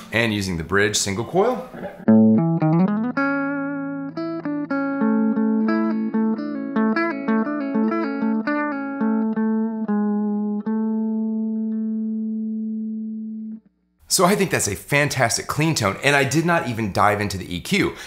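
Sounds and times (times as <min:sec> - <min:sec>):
clean electric guitar lead: 0:02.0 - 0:13.7.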